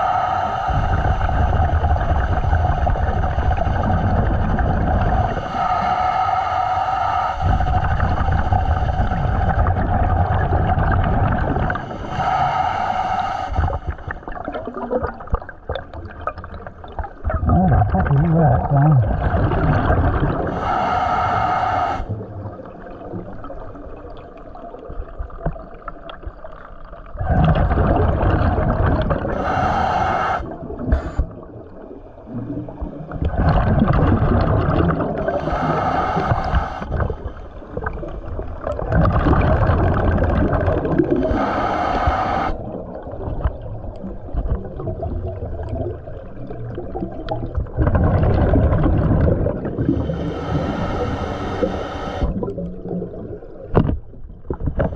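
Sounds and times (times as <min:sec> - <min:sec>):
regulator inhale hiss: 0:00.0 - 0:04.1, 0:05.2 - 0:09.7, 0:11.7 - 0:14.3, 0:20.4 - 0:22.2, 0:29.3 - 0:31.5, 0:35.2 - 0:37.7, 0:41.1 - 0:42.6, 0:49.9 - 0:52.4
exhaust bubbles rumbling underwater: 0:00.0 - 0:54.9.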